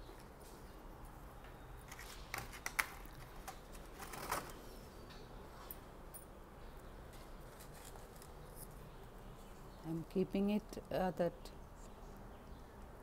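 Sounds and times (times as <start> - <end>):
rustle or scrape: 7.2 - 8.7.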